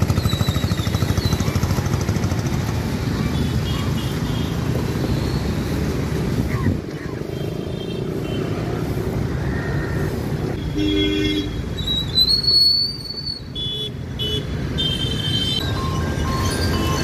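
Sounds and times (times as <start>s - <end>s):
vehicle engines running: 0.0s - 10.6s, 11.5s - 17.0s
vehicle horns honking: 10.6s - 11.7s, 13.5s - 15.7s
high shrill whistle: 11.8s - 13.5s.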